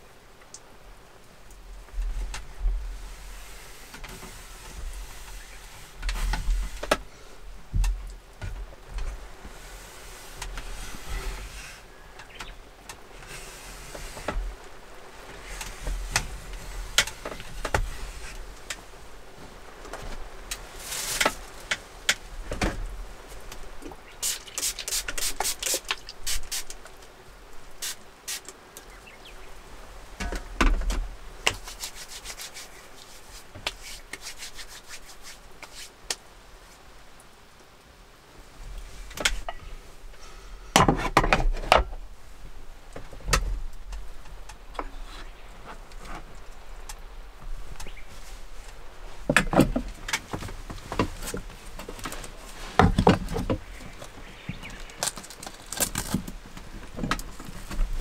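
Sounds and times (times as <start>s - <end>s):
rubbing on wood: 31.5s - 36.0s.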